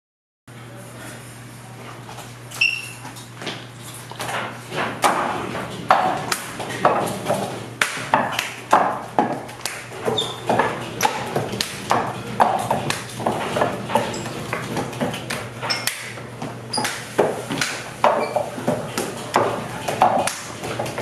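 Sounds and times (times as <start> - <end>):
sharp wooden knocks: 4.7 - 21.0.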